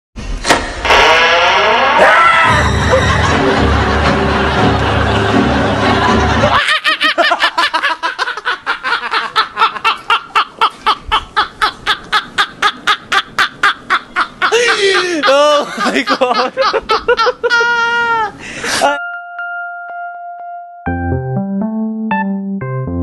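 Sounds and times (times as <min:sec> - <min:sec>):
music with steady bass: 0:01.7 - 0:06.6, 0:19.4 - 0:23.0
men laughing hard: 0:02.1 - 0:19.0.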